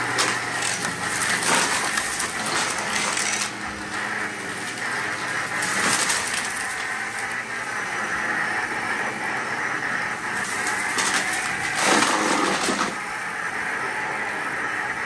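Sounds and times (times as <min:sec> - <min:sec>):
debris crackling in vacuum: 0:00.0 - 0:07.7, 0:10.3 - 0:13.1
vacuum cleaner whining: 0:00.0 - 0:15.0.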